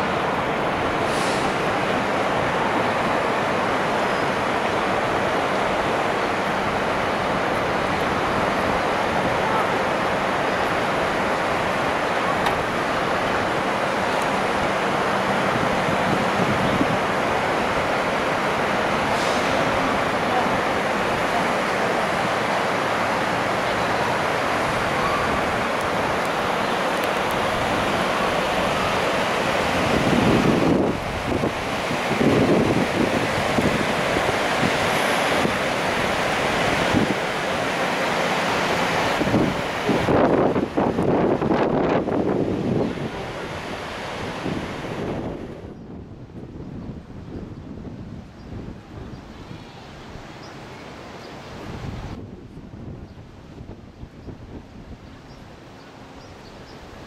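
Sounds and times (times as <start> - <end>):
propeller wash churning water: 0.0 - 45.6.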